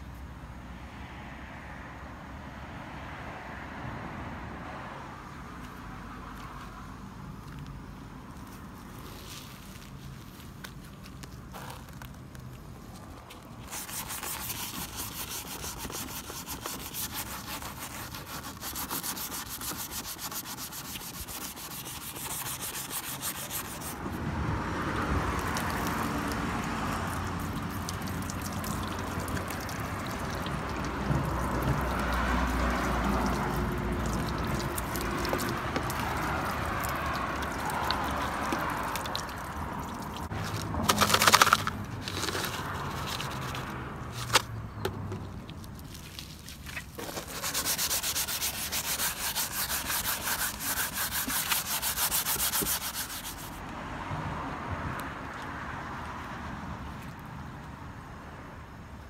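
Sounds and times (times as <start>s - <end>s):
wet scrubbing on plastic panels: 8.8s - 24.0s, 27.0s - 44.5s, 45.2s - 53.6s.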